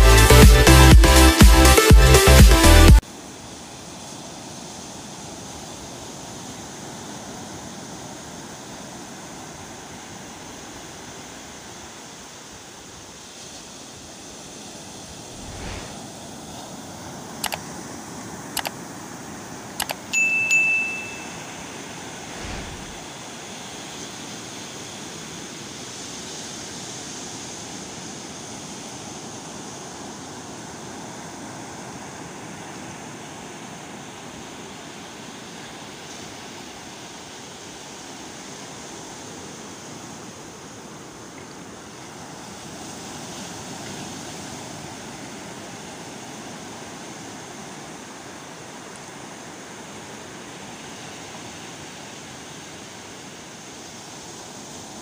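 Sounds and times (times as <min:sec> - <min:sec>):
sea surf: 0:00.0 - 0:55.0
sharp clicks: 0:19.8 - 0:20.0
short bright ding: 0:20.2 - 0:21.7.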